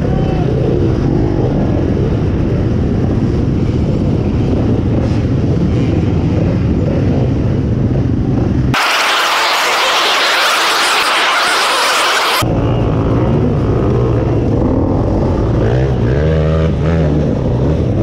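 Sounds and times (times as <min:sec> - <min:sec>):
dirt bike engines rumbling: 0:00.0 - 0:18.0
harsh hiss: 0:08.8 - 0:12.4.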